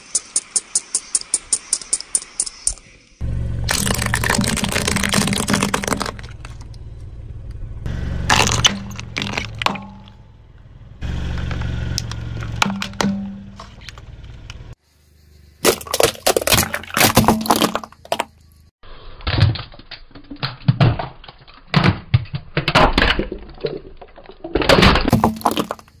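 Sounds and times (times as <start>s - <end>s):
skull cracking under car tyre: 3.7s - 7.6s, 8.2s - 10.7s, 19.2s - 26.0s.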